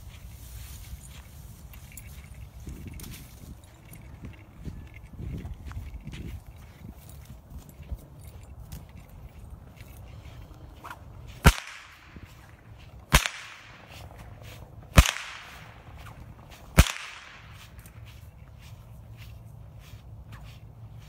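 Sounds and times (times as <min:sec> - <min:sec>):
whip cracking: 0:10.8 - 0:12.4, 0:13.0 - 0:14.1, 0:14.9 - 0:17.7.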